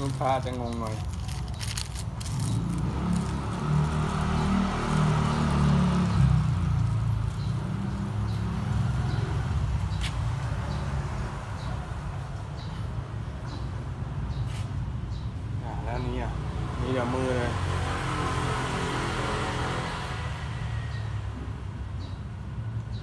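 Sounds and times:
crinkling and clicks: 0:00.0 - 0:03.5
engine rumbling: 0:00.0 - 0:23.0.

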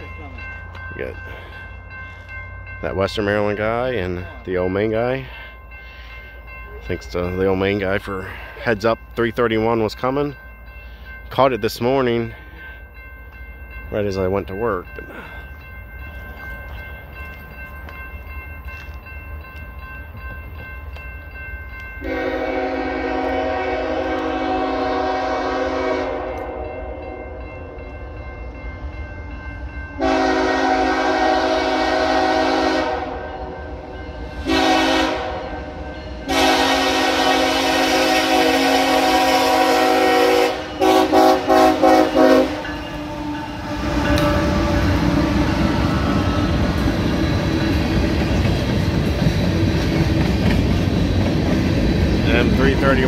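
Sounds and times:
locomotive passing rumble: 0:00.0 - 0:53.0
locomotive air horn: 0:22.0 - 0:26.6, 0:30.0 - 0:33.3, 0:34.4 - 0:35.6, 0:36.3 - 0:46.4.

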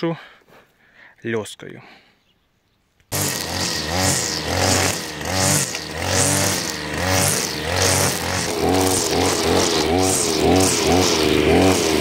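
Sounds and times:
brush cutter engine revving: 0:03.1 - 0:12.0.

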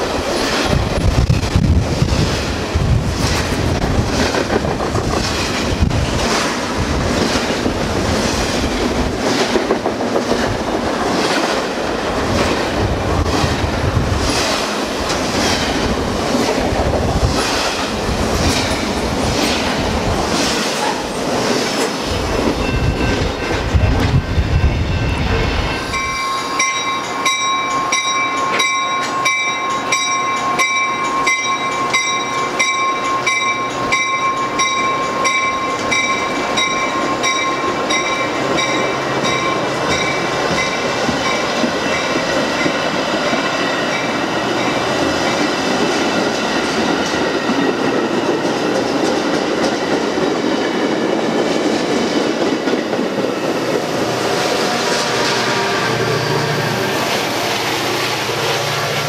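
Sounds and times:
low rumble of freight train: 0:00.0 - 0:59.0
train wheels clicking over rail joints: 0:00.0 - 0:59.0
high squeal: 0:54.6 - 0:58.0.

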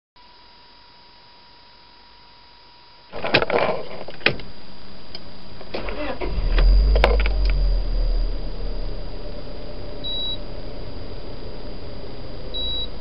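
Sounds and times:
car engine starting and idling: 0:05.6 - 0:13.0.

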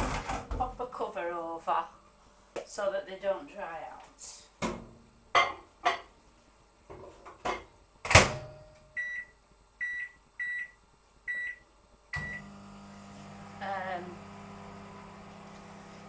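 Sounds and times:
microwave humming: 0:11.3 - 0:16.0.

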